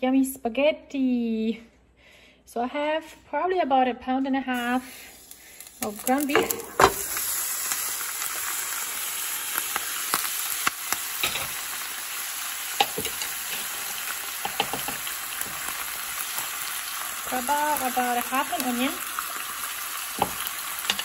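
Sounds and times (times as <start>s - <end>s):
meat sizzling in oil: 4.6s - 21.0s.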